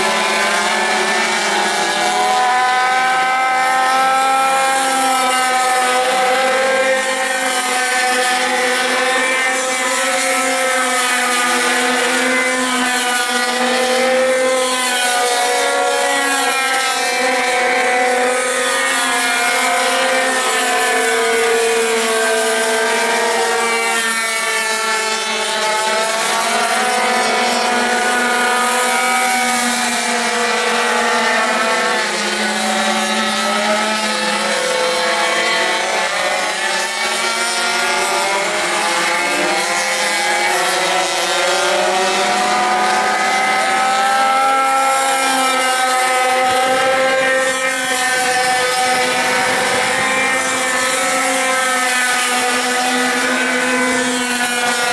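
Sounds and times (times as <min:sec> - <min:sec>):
pocket bike engines racing: 0:00.0 - 0:54.9.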